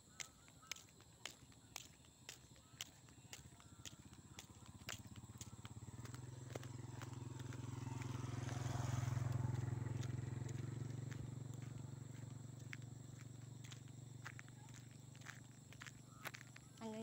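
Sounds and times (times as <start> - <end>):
light footsteps on pavement: 0.0 - 17.0
small motorcycle engine passing: 3.8 - 16.8.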